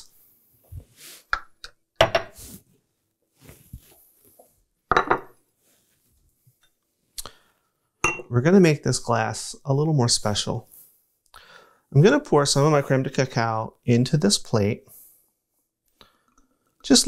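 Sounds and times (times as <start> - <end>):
plates and glass clinking: 4.9 - 5.4, 8.0 - 8.3.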